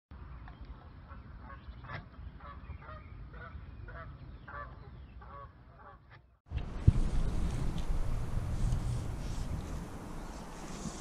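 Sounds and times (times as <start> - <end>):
low rumble: 6.5 - 10.7.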